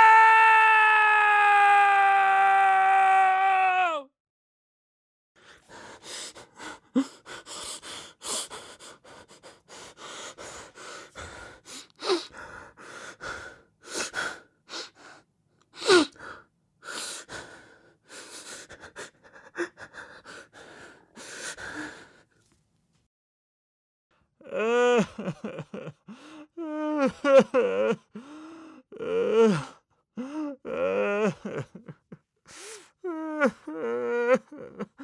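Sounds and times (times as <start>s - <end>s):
person crying out: 0.0s - 4.1s
person sobbing: 18.2s - 22.2s, 24.4s - 35.0s.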